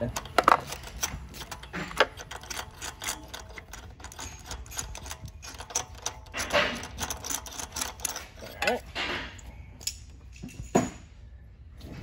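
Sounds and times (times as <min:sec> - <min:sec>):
socket ratchet clicking: 0:00.0 - 0:08.8
metal tools clinking: 0:00.0 - 0:11.2.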